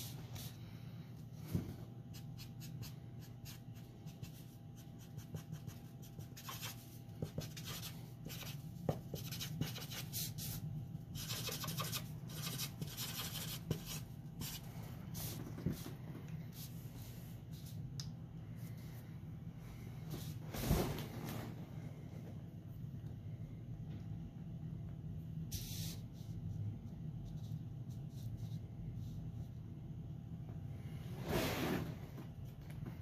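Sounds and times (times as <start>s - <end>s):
steady low hum: 0.0s - 33.0s
marker scratching on paper: 2.1s - 10.6s, 11.2s - 15.8s.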